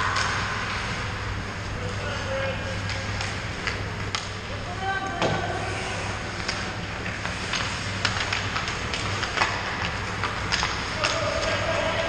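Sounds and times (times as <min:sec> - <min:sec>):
hockey sticks and puck clacking: 0:00.0 - 0:00.9, 0:01.9 - 0:04.6, 0:06.4 - 0:12.0
steady low hum: 0:00.0 - 0:12.0
skates scraping ice: 0:05.4 - 0:12.0.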